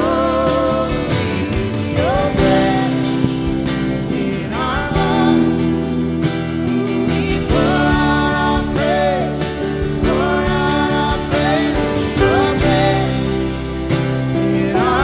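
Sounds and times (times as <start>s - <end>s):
strummed acoustic guitar: 0.0s - 15.0s
sustained keyboard chords: 0.0s - 15.0s
woman and man singing: 0.0s - 15.0s.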